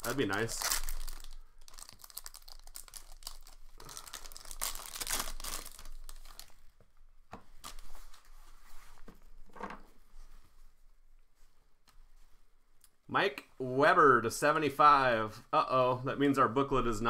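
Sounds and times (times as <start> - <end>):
wrapper tearing and crinkling: 0.0 - 6.7
cards rustling: 0.0 - 6.8.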